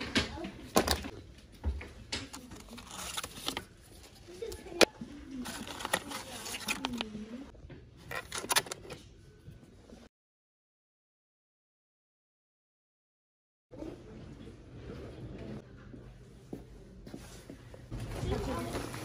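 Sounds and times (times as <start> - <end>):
plastic pouches rustling and clicking: 2.2 - 7.2, 8.0 - 9.0.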